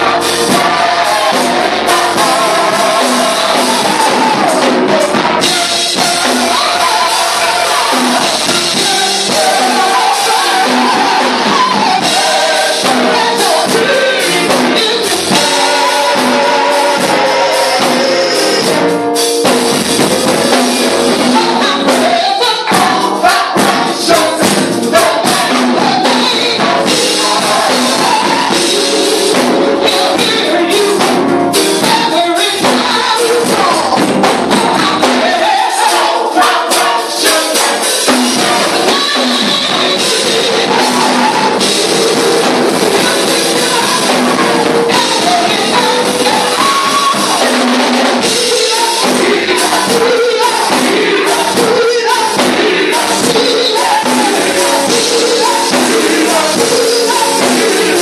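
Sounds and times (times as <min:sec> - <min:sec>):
loud music: 0:00.0 - 0:58.0
sharp percussion hits: 0:00.0 - 0:58.0
vocal group singing: 0:00.0 - 0:58.0.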